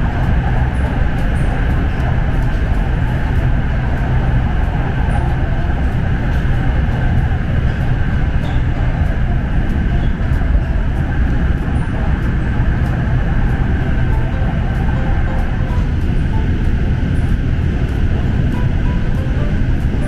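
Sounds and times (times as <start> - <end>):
electric train running rumble: 0.0 - 20.0.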